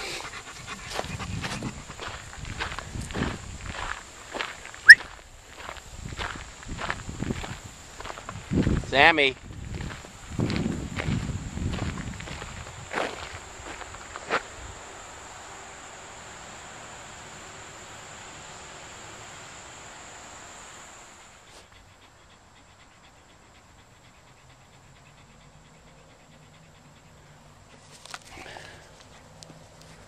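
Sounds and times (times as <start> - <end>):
high insect drone: 9.1 - 22.0.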